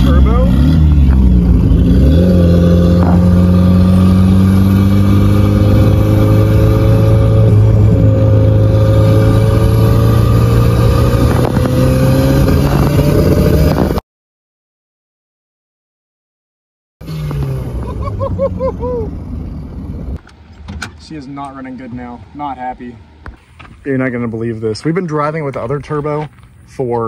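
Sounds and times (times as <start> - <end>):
car engine accelerating: 0.0 - 14.0, 17.0 - 20.6.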